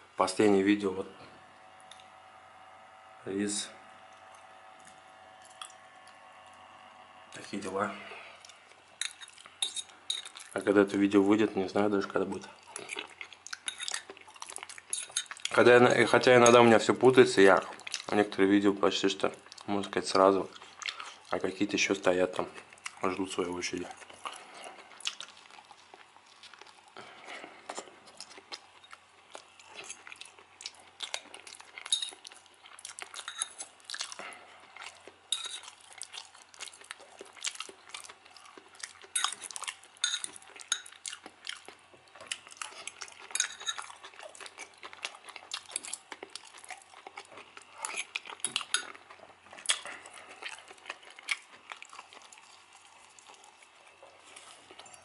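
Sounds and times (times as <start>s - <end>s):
metal fork scraping enamel bowl: 13.7s - 14.0s, 14.9s - 15.3s, 33.2s - 33.6s, 43.3s - 43.8s.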